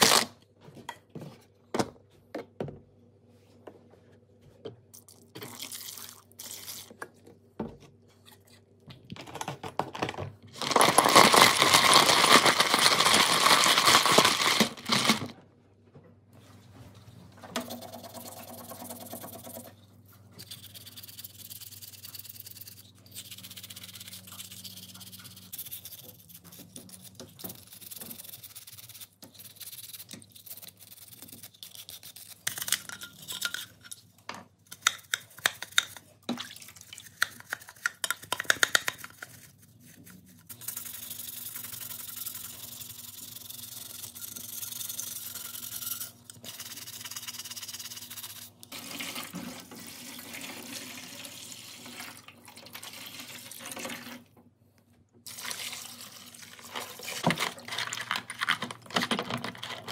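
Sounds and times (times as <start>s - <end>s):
brush scrubbing plastic parts: 17.6s - 34.0s.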